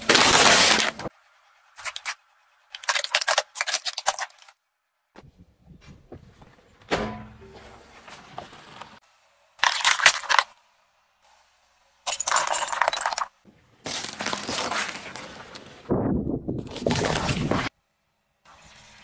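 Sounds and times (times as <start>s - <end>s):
plastic toys crunching under tyre: 0.0s - 1.1s, 1.8s - 4.6s, 9.6s - 10.6s, 12.0s - 15.8s, 16.6s - 17.7s.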